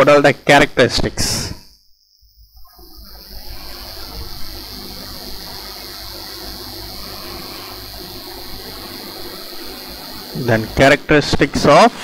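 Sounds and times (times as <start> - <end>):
steady hiss: 2.4 - 12.0.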